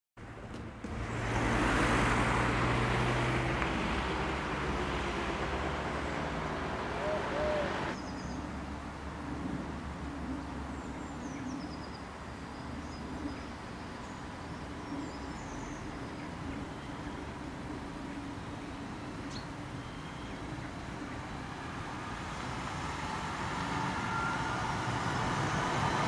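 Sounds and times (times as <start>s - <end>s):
tram hum and rumble: 0.2s - 8.0s, 15.8s - 26.0s
broad rushing noise: 0.5s - 8.0s
birds chirping: 1.0s - 8.4s.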